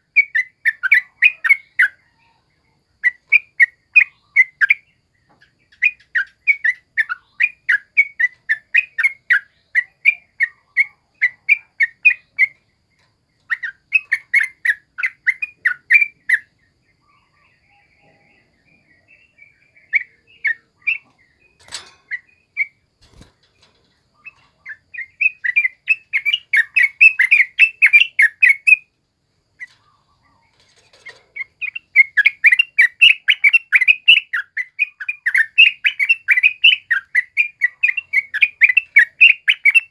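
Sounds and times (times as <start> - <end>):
bulbul singing chattering notes: 24.1 - 28.9.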